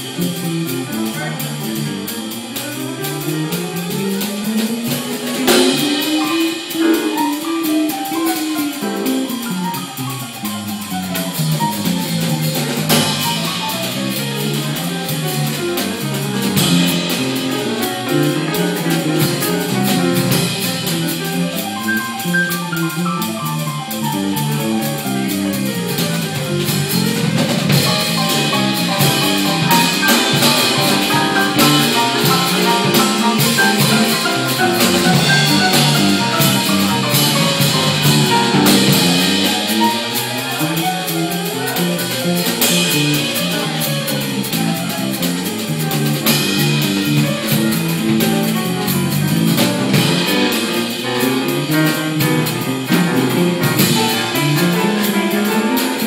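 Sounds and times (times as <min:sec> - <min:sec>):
piano chords: 0:00.0 - 0:56.0
electric bass line: 0:09.9 - 0:40.7.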